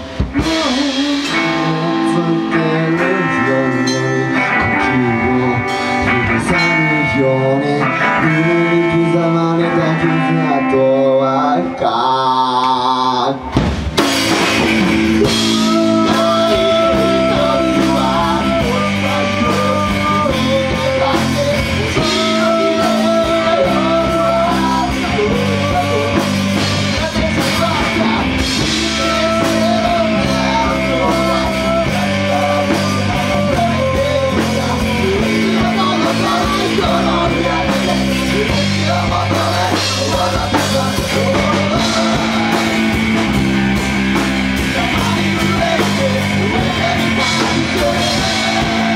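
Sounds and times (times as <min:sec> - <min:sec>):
live rock band playing: 0:00.0 - 0:48.9.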